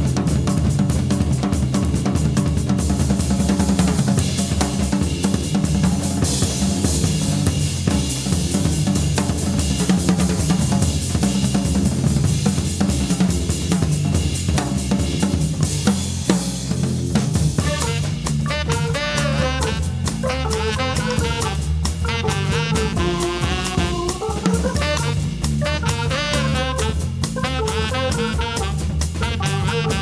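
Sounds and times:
jazz drum kit playing fast: 0.0 - 30.0
low organ line: 17.6 - 30.0.

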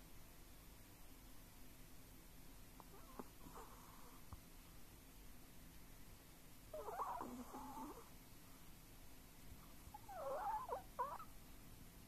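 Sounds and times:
dog whimpering through nose: 6.7 - 8.1, 9.9 - 11.4.

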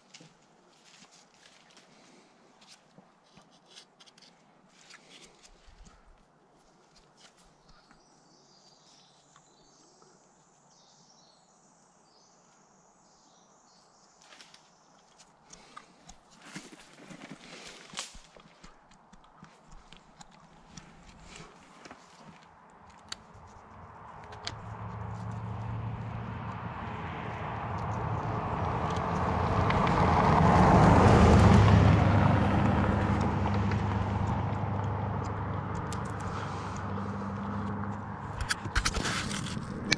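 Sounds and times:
faint high-pitched birdsong: 6.7 - 16.1
car driving past: 24.6 - 39.9.

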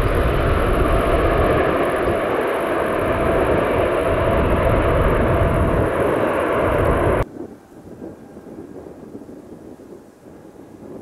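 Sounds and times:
loud jet roar: 0.0 - 7.2
faint high engine whine: 0.0 - 8.3.

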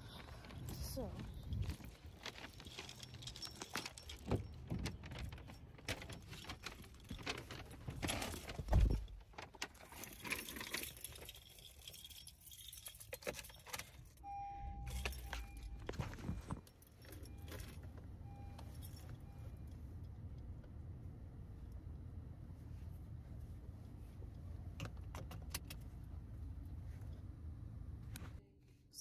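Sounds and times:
low steady hum: 0.0 - 29.0
car keys jangling: 0.3 - 20.3
car electronic chime beeps: 14.2 - 16.6, 17.2 - 19.8.

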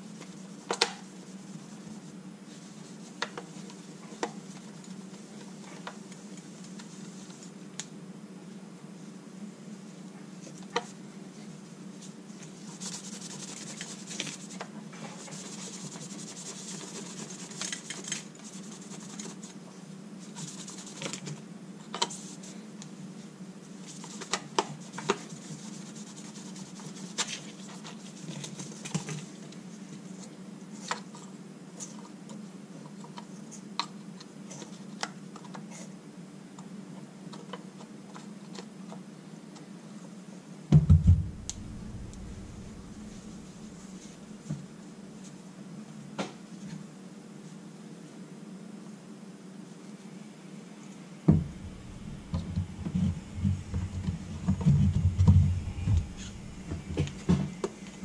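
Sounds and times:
loud low thud: 40.7 - 44.4, 51.3 - 58.0
steady low hum: 40.7 - 45.2, 50.2 - 58.0
cloth wiping plastic panel: 51.3 - 58.0.

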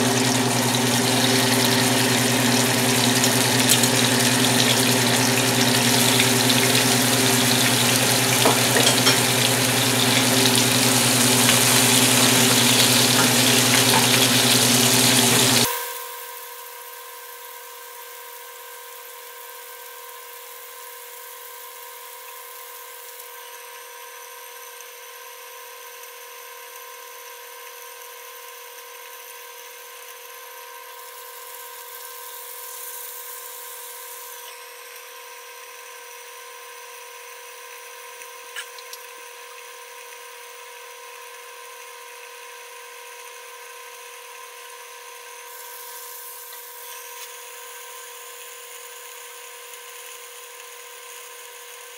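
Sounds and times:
spatula turning food: 0.0 - 15.7
chicken sizzling in oil: 0.0 - 16.3, 17.7 - 51.9
glass lid placed on pan: 8.4 - 9.4.

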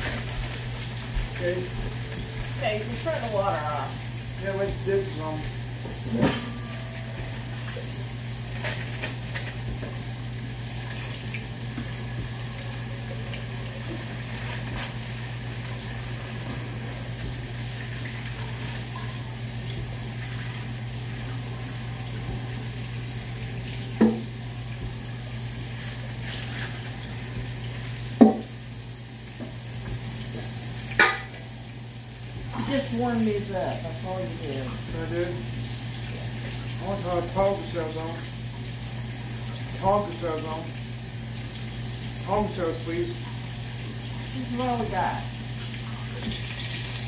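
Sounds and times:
kitchen hum and hiss: 0.0 - 47.0
dishes clinking into rack: 6.0 - 7.3, 31.0 - 31.4.

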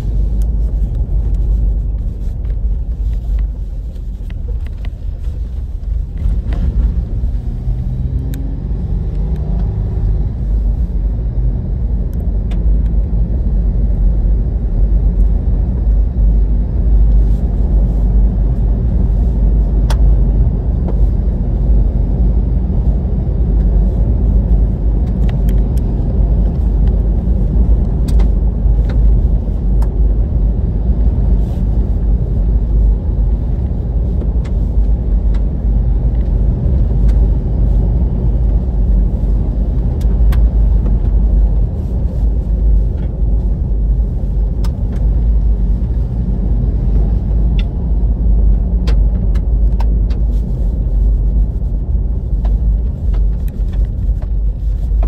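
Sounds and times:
tyres and drivetrain rumbling: 0.0 - 55.0.

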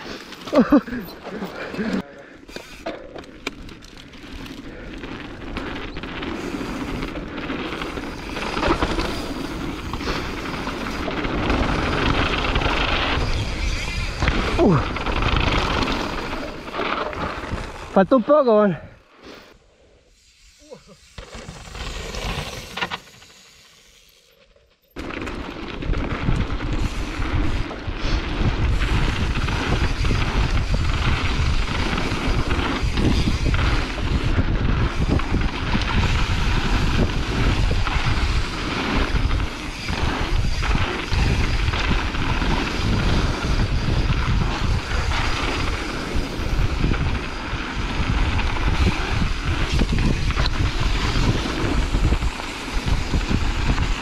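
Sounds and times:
bike tyres rumbling over dirt: 0.0 - 18.7, 21.1 - 24.0, 25.0 - 54.0
whoosh of rider passing: 25.1 - 54.0
wind buffeting microphone: 25.8 - 54.0.

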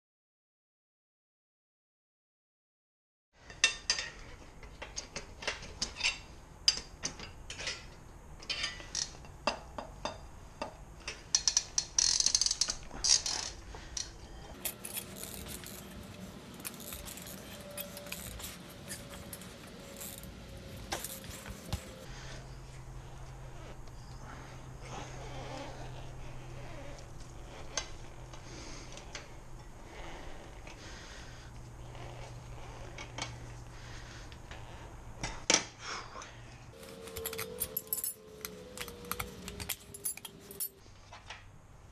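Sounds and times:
metal scraping: 14.5 - 28.7.

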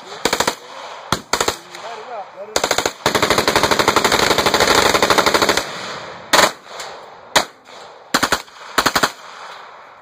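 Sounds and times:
submachine gun automatic bursts: 2.6 - 5.8, 8.1 - 9.2.

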